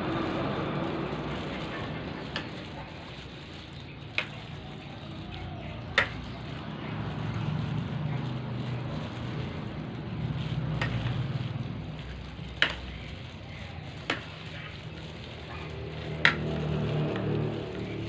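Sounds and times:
meat tossed by hand: 0.0s - 18.0s.

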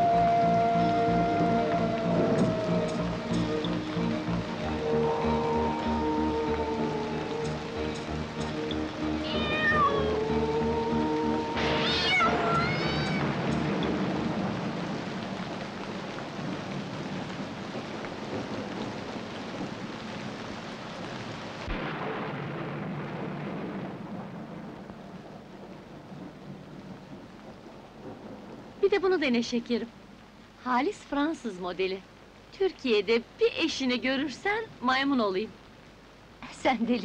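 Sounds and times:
music: 0.0s - 15.1s
rain hissing: 0.0s - 37.0s
thunder crack: 9.0s - 19.8s, 21.6s - 28.8s
cat meowing: 9.1s - 13.3s.

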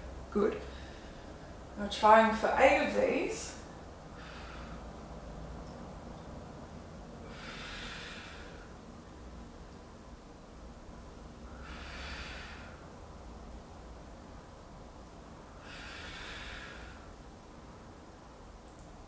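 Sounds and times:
low steady hum: 0.0s - 19.0s
woman exhaling hard: 11.5s - 12.8s, 15.6s - 17.1s.

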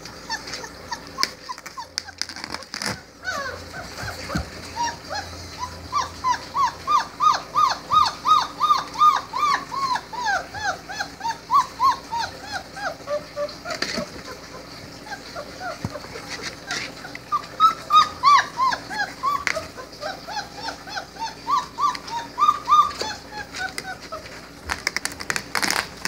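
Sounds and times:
puppies whimpering: 0.0s - 26.0s.

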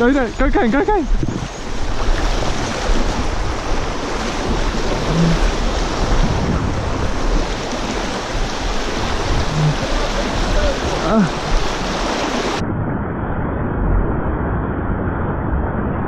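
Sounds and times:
river water rushing: 0.0s - 12.6s
wind rumbling on microphone: 0.0s - 16.0s.

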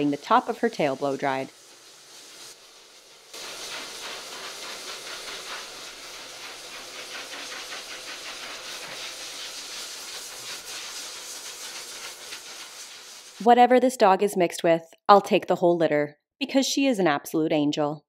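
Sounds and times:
pet blow dryer blowing air: 3.4s - 12.1s.

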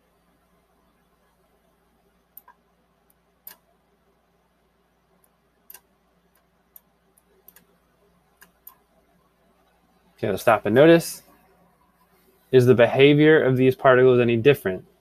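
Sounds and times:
faint computer clicks: 2.3s - 3.7s, 5.2s - 8.9s.

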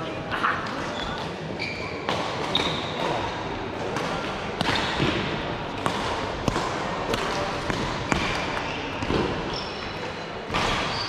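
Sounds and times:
shoe squeaks on court floor: 0.9s - 3.2s, 8.1s - 10.0s, 10.6s - 11.0s.

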